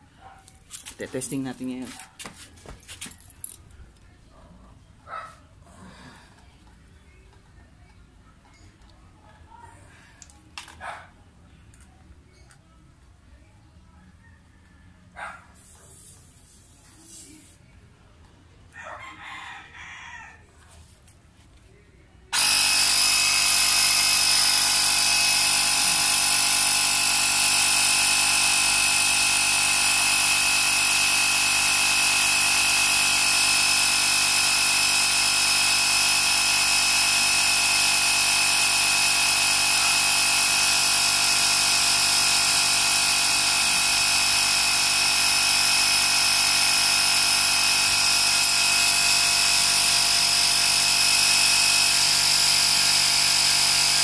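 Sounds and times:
air compressor whining: 22.3s - 54.0s.

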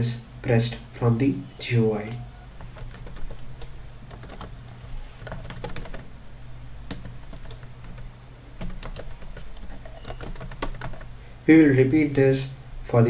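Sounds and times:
faint low hum: 0.0s - 13.0s
typing on computer keyboard: 2.6s - 6.1s, 6.9s - 11.1s.

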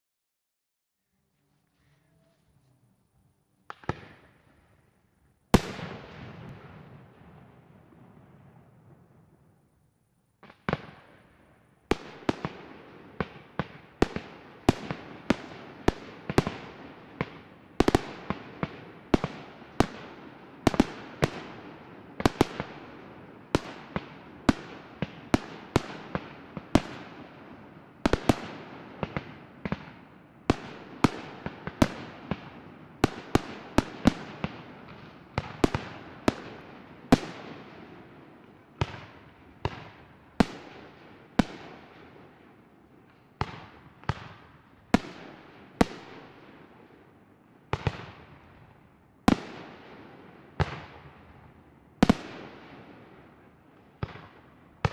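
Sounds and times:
small firework pops: 3.6s - 4.5s, 10.4s - 11.3s, 43.0s - 46.2s, 47.7s - 48.4s, 54.0s - 54.9s.

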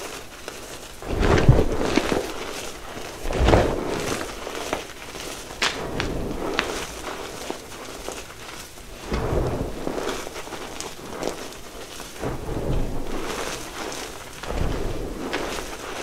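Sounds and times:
hands crushing chalk powder: 0.0s - 16.0s.

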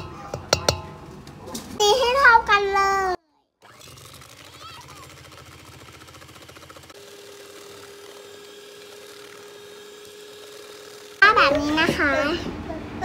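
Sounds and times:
electric hand mixer whining: 3.6s - 11.5s.

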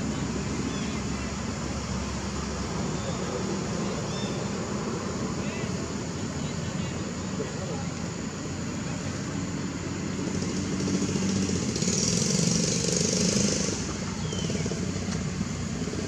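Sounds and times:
vehicle engine passing: 8.9s - 16.0s.

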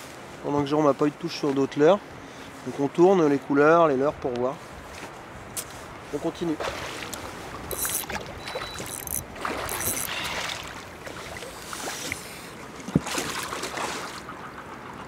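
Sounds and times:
wind: 0.0s - 15.0s
water sloshing against boat: 6.0s - 15.0s.

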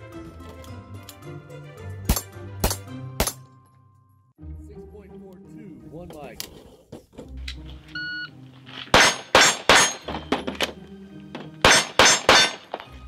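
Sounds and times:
pistol shots: 8.9s - 10.7s, 11.6s - 13.0s.

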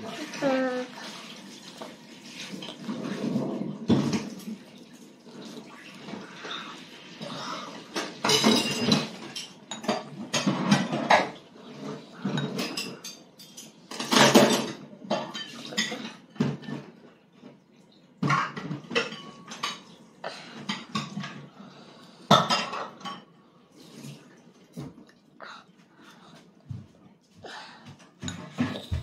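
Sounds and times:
utensils clinking on ceramic bowl: 7.9s - 16.9s, 18.2s - 20.0s, 22.3s - 23.3s, 28.0s - 29.0s.

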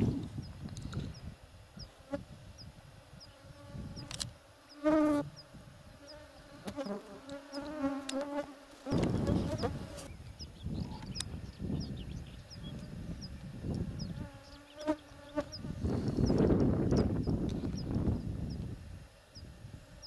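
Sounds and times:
flying insect buzzing: 0.0s - 10.1s, 12.8s - 20.0s.

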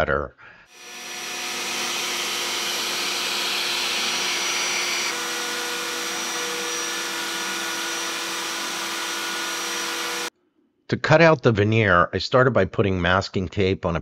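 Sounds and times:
router spindle whine: 0.7s - 10.3s
shop vacuum hiss: 0.7s - 10.3s.

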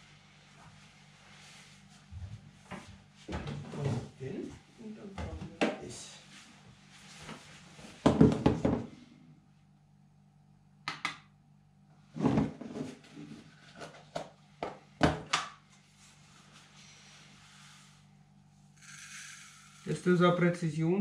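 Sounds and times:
plastic containers knocking on counter: 8.0s - 8.9s.

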